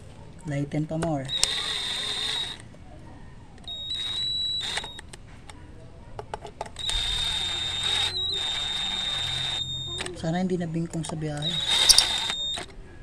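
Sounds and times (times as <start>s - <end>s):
electric screwdriver whining: 1.0s - 2.6s, 3.6s - 5.6s, 6.7s - 10.2s, 11.1s - 12.8s.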